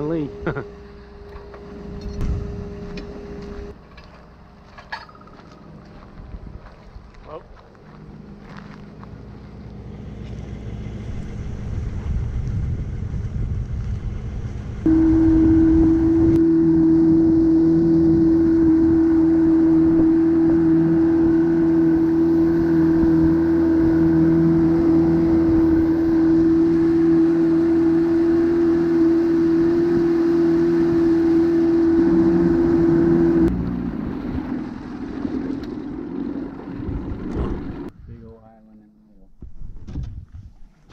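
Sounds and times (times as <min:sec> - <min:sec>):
low rumble: 0:00.0 - 0:03.8, 0:07.8 - 0:38.2
outboard motor running: 0:07.9 - 0:37.9.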